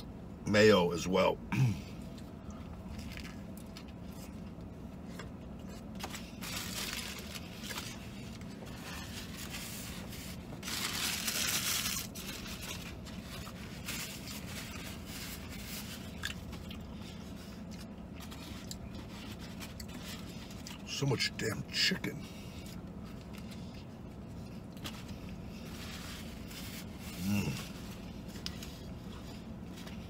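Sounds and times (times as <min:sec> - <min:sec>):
steady low hum: 0:00.0 - 0:30.0
paper napkins rustling: 0:06.0 - 0:16.0.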